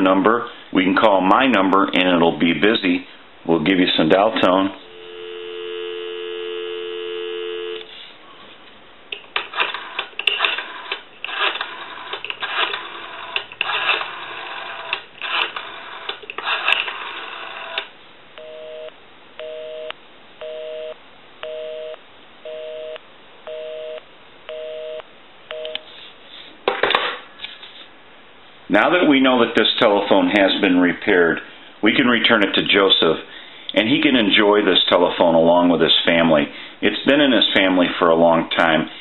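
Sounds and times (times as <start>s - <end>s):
dial tone: 4.8s - 7.9s, 18.4s - 25.8s
two-tone busy signal beeps: 4.8s - 7.9s, 18.4s - 25.8s.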